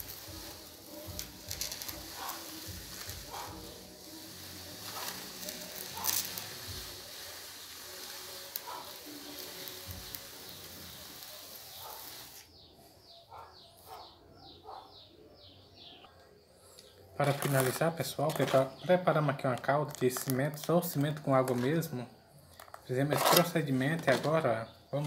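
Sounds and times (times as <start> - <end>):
template scraping wet cement: 22.6 - 24.5.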